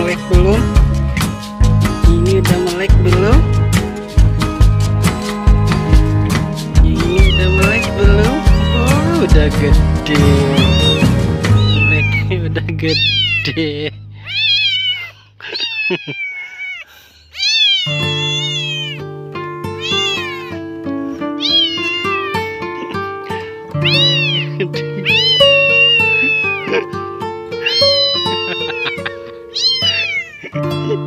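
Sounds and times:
background music: 0:00.0 - 0:14.2
kitten mewing: 0:06.8 - 0:09.5, 0:10.2 - 0:12.3, 0:12.9 - 0:19.0, 0:19.7 - 0:20.6, 0:21.4 - 0:26.9, 0:27.6 - 0:30.6.

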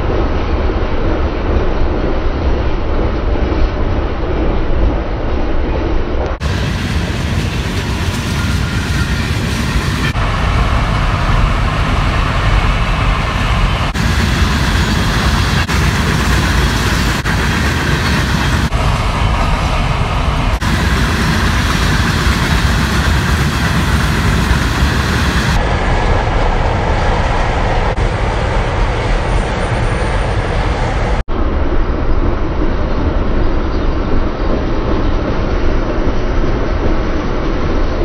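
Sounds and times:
steel wheels running on rails: 0:06.4 - 0:31.2.

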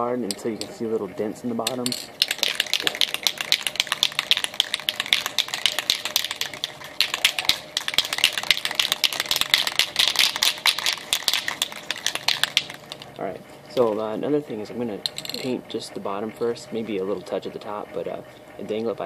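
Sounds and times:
spray can shaken rattling: 0:02.2 - 0:13.2.

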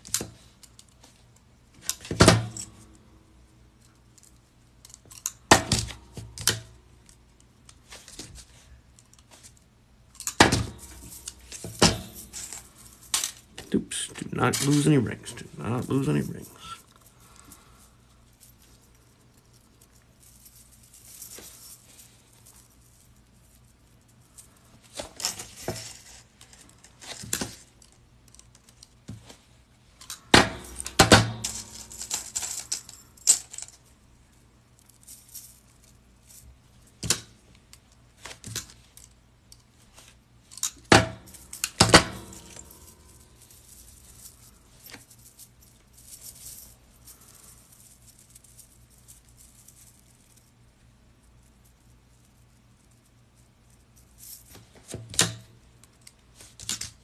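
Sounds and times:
metal rings clinking and jingling: 0:10.2 - 0:28.9, 0:30.0 - 0:36.9, 0:40.5 - 0:50.6.

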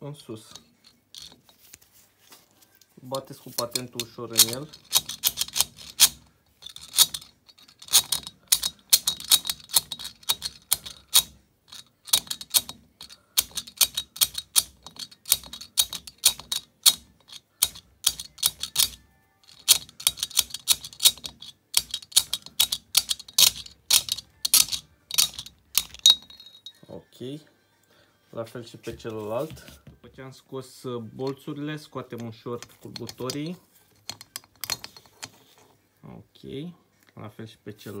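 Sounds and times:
pliers tapping on metal bolt: 0:06.8 - 0:11.4, 0:12.1 - 0:26.7.

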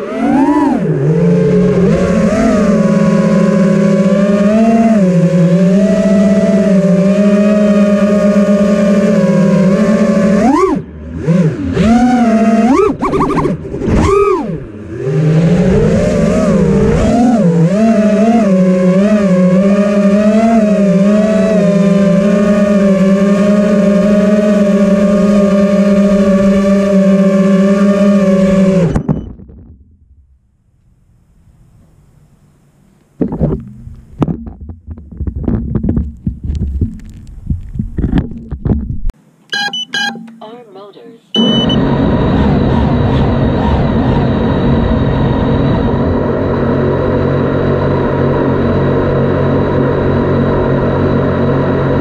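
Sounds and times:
quadcopter motors whining: 0:00.0 - 0:29.2, 0:41.3 - 0:52.0.

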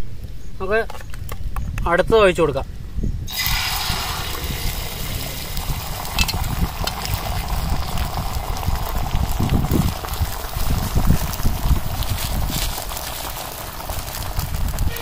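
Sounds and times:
egg sizzling on hot griddle: 0:03.3 - 0:15.0
sharp crackles: 0:03.3 - 0:15.0.

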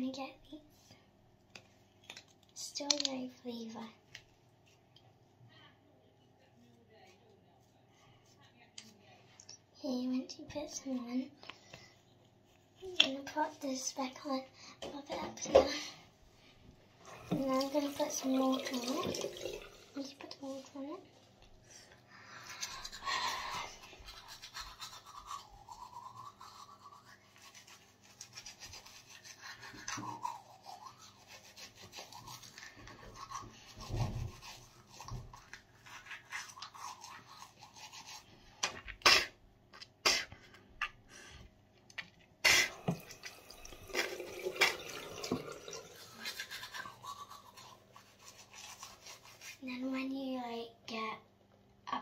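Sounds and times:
toothbrush scrubbing teeth: 0:22.2 - 0:40.3, 0:42.4 - 0:50.0.

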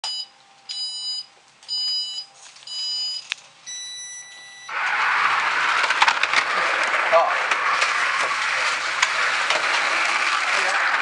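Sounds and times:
short electronic beeps: 0:00.0 - 0:04.7
rush of slot cars: 0:04.7 - 0:11.0.

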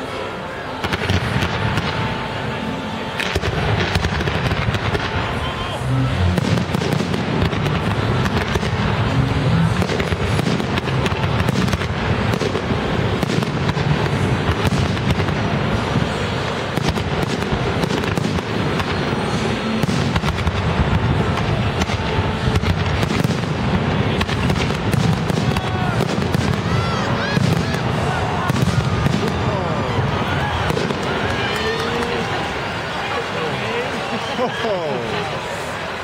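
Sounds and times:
fireworks bangs and crackling: 0:00.0 - 0:36.0
whistling firework glides: 0:00.0 - 0:36.0.

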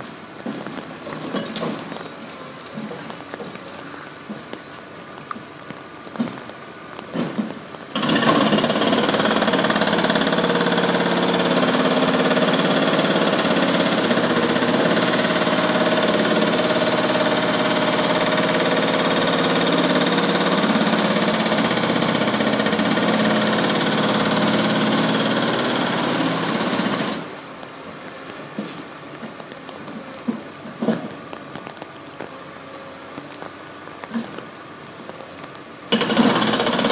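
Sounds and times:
engine running: 0:07.9 - 0:27.4.

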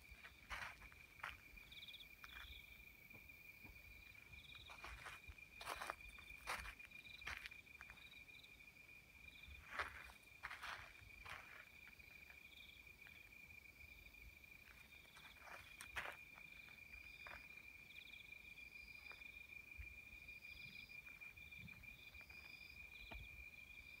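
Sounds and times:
footsteps on gravel: 0:00.1 - 0:01.5, 0:03.6 - 0:08.1, 0:09.6 - 0:12.4, 0:14.6 - 0:17.4.

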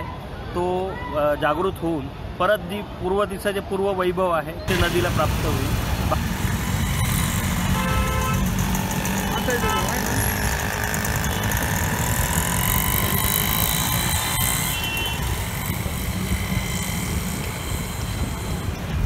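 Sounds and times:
street traffic: 0:00.0 - 0:19.0.

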